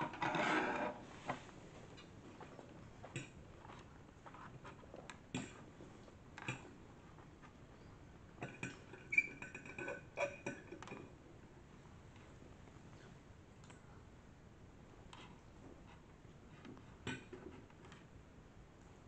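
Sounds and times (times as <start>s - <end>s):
fork scraping on ceramic plate: 0.0s - 1.0s.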